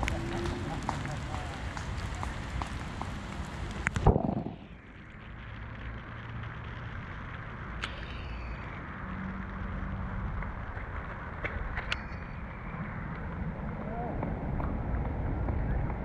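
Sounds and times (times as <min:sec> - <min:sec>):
wind noise on microphone: 0:01.6 - 0:05.9
thump on microphone: 0:04.0 - 0:04.6
faint clicks: 0:07.3 - 0:08.8.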